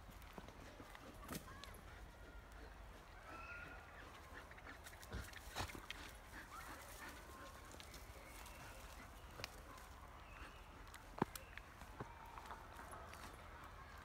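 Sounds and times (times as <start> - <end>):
rustling through undergrowth: 0.0 - 14.0
dogs snuffling: 3.8 - 9.8.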